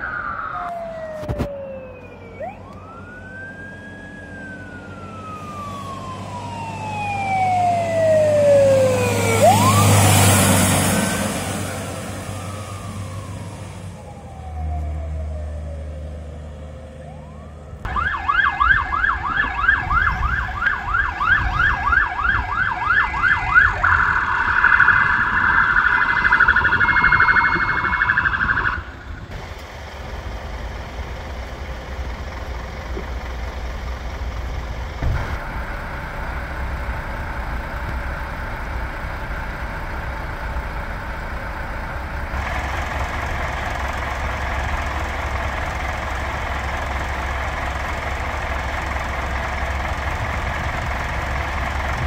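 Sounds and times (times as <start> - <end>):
emergency siren yelping: 0.0 - 29.4, 33.7 - 52.0
street noise: 0.0 - 52.0
vehicle engines idling: 0.0 - 52.0.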